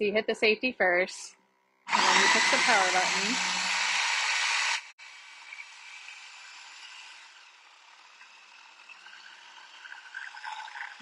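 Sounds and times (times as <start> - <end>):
food processor motor chopping: 1.9 - 9.8.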